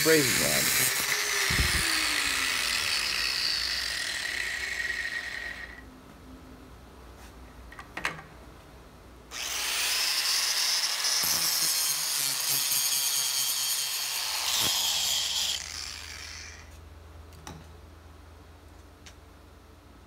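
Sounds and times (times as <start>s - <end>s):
angle grinder cutting metal: 0.0s - 5.8s, 9.3s - 16.8s.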